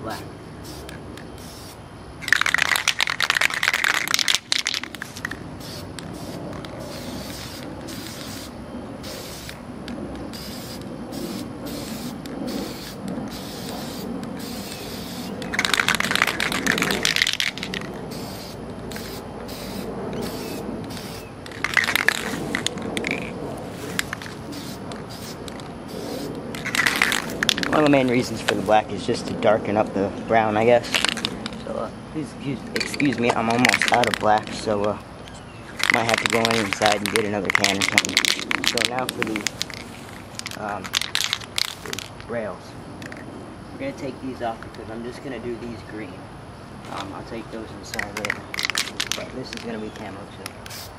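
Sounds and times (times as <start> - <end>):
spray paint can hissing: 0.6 - 9.6, 10.3 - 28.7, 35.8 - 42.1, 48.0 - 49.7, 50.5 - 50.9.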